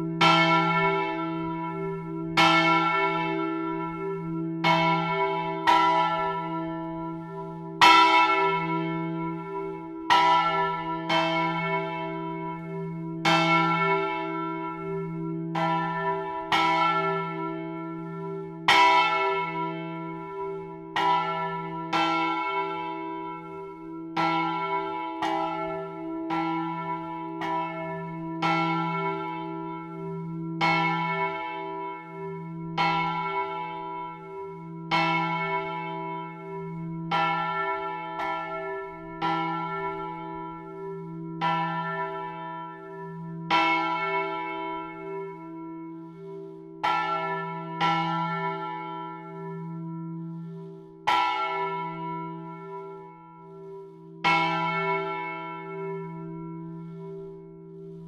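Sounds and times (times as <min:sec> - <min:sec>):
large church bell ringing: 0:00.0 - 0:58.0.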